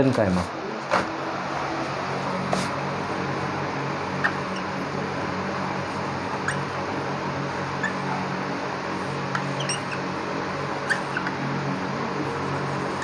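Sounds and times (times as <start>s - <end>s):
marker pen squeaking on whiteboard: 4.2s - 4.8s, 6.4s - 6.7s, 7.8s - 8.2s, 9.3s - 10.1s, 10.8s - 11.4s.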